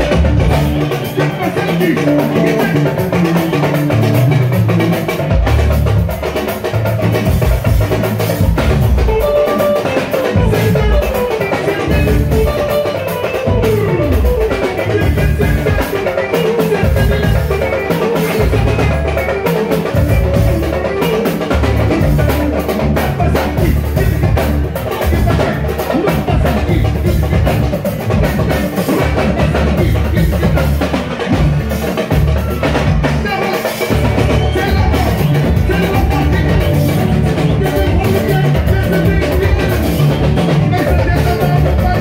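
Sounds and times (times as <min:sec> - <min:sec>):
bass guitar: 0:00.0 - 0:42.0
drum kit beat: 0:00.0 - 0:42.0
electric guitar: 0:00.0 - 0:42.0.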